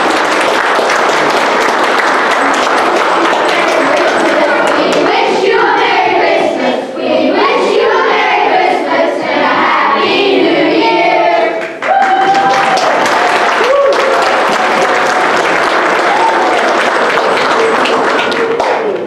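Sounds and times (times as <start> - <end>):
applause: 0.0 - 5.2, 11.6 - 19.0
children's choir singing: 0.0 - 11.8.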